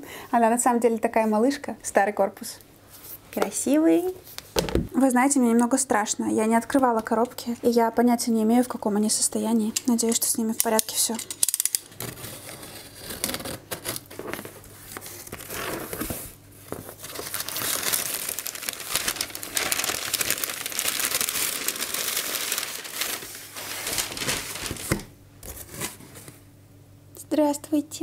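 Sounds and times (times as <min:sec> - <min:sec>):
knife slitting packing tape: 0:11.4 - 0:14.2
crumpled newspaper crinkling: 0:12.0 - 0:26.4.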